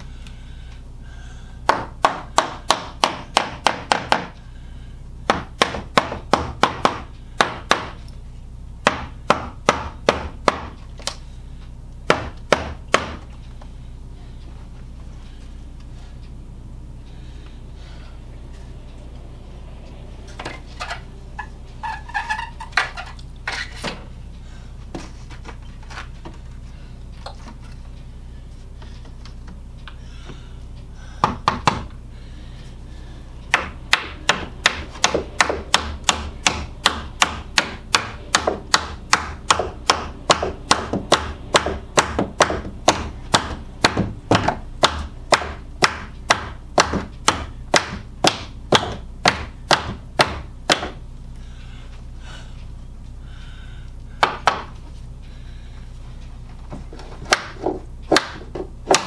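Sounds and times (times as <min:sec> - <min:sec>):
hammer tapping wood: 0:54.2 - 0:54.7.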